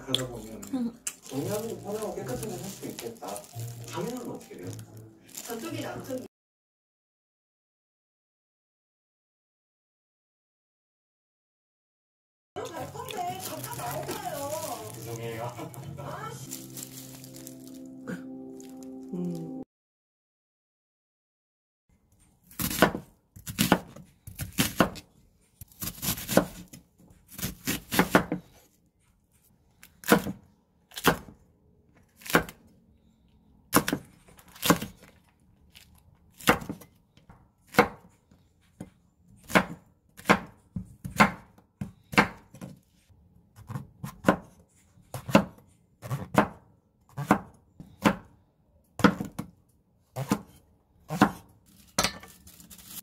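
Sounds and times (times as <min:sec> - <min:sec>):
knife chopping on wooden board: 0:22.5 - 0:25.0, 0:25.7 - 0:28.5, 0:30.0 - 0:31.4, 0:33.7 - 0:35.0, 0:36.4 - 0:36.9, 0:37.7 - 0:38.2, 0:38.8 - 0:42.8, 0:43.6 - 0:48.3, 0:49.0 - 0:49.5, 0:50.2 - 0:52.3.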